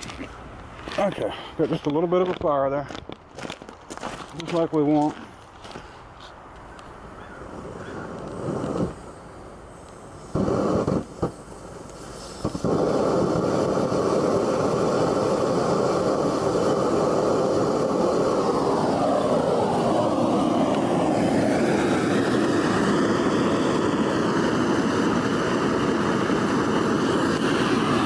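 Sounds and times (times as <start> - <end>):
gas burner roaring: 6.7 - 28.0.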